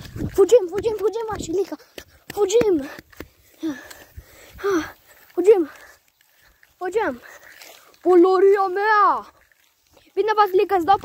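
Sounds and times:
light footstep taps: 0.0s - 4.3s
child breathing hard: 1.7s - 7.9s
child gasping: 1.8s - 6.0s.

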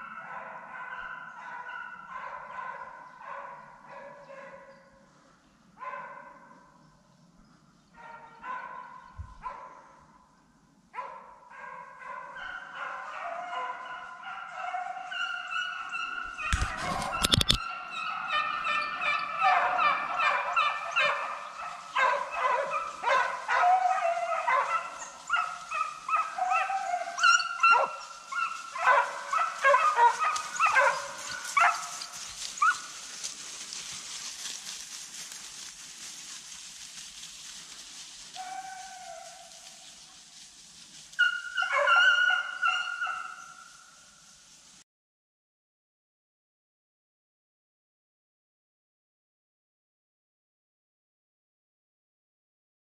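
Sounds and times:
hounds baying and yelping: 0.0s - 4.9s, 5.8s - 6.8s, 7.9s - 10.2s, 11.0s - 44.1s.

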